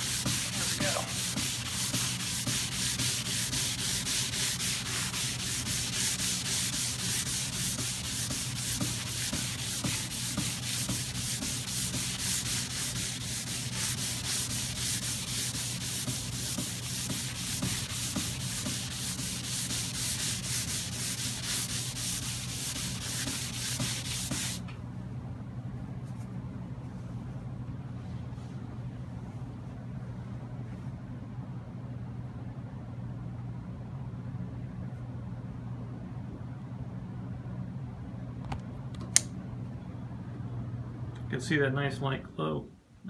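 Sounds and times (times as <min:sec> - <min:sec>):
shavings scrubbing wood: 0:00.0 - 0:24.6.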